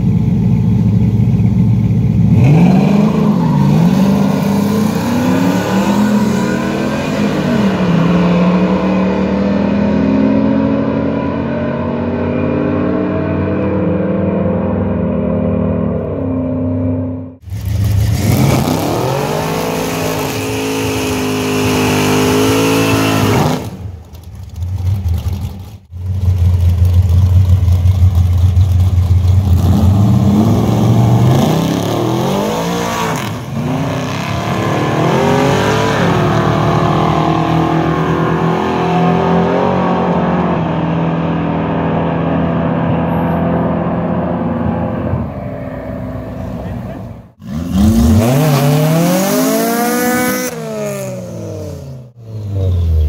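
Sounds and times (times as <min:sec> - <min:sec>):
race car engines revving: 0:00.0 - 0:53.0.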